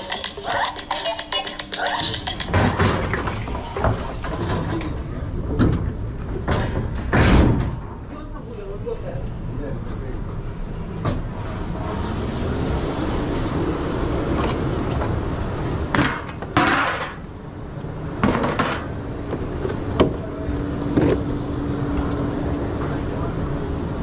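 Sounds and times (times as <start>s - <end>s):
steady hum: 0.0s - 24.0s
kitchen machinery rumble: 10.9s - 24.0s.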